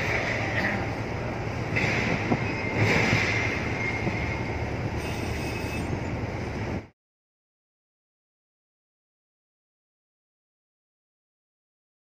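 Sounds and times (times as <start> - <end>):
ship engine low rumble: 0.0 - 6.9.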